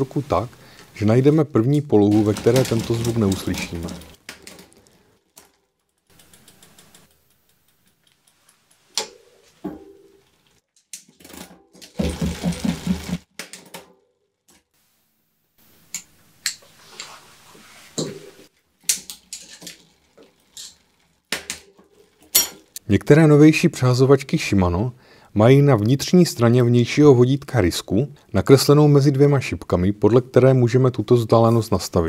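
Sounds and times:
pulley clattering against cog: 0:02.0 - 0:04.7
bicycle chain and derailleur clicking: 0:02.0 - 0:09.2, 0:18.9 - 0:22.8.

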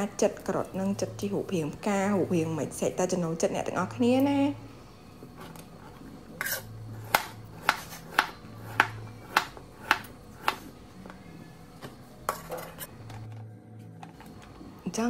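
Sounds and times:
knife chopping on plastic board: 0:07.0 - 0:10.7.

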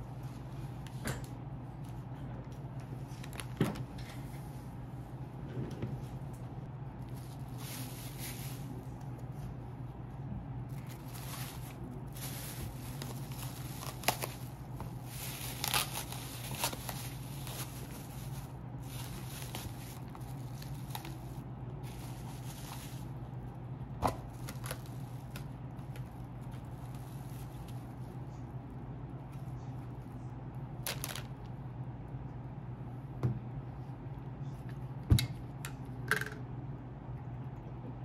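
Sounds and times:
rustling and crinkling: 0:01.8 - 0:04.7, 0:07.0 - 0:10.0, 0:10.7 - 0:28.6, 0:30.8 - 0:31.6.

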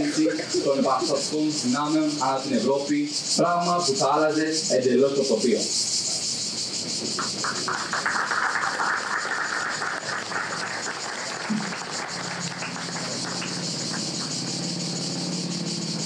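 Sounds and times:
cicadas buzzing: 0:00.0 - 0:16.0
low rasping buzz: 0:05.8 - 0:16.0.

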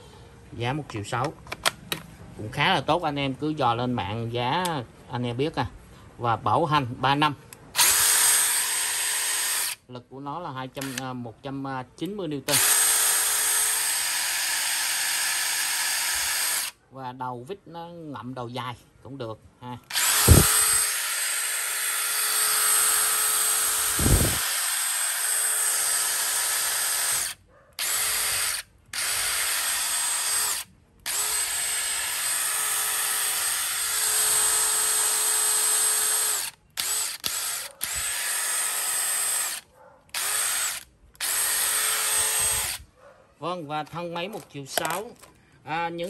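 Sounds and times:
impact driver motor whine: 0:19.9 - 0:42.8.

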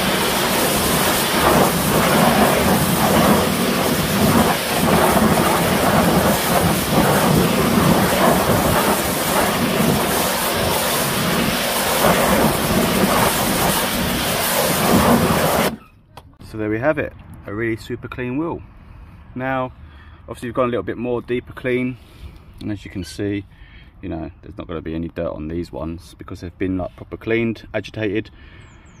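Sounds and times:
pressure washer water spray hissing: 0:00.0 - 0:15.8.

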